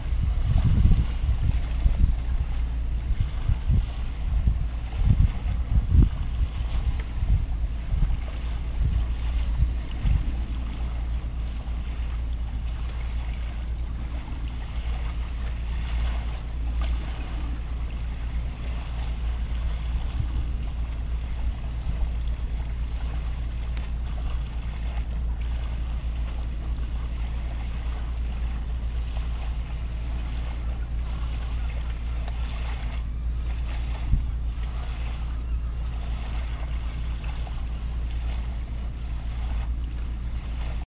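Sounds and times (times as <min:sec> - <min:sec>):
hiss of wind and water: 0:00.0 - 0:40.8
wind buffeting microphone: 0:00.0 - 0:40.8.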